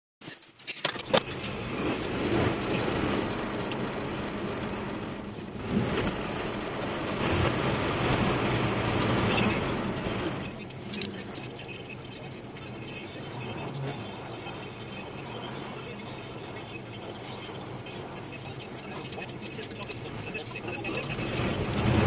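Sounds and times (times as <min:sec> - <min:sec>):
road and engine noise: 0:00.2 - 0:22.0
low hum: 0:00.9 - 0:22.0
sharp clicks: 0:07.4 - 0:11.7.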